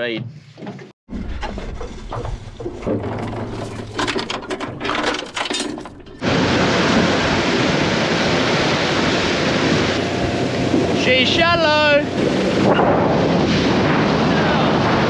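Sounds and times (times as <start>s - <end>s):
fishing gear clicking and rattling: 1.4s - 6.2s
rush of wind and water: 1.4s - 15.0s.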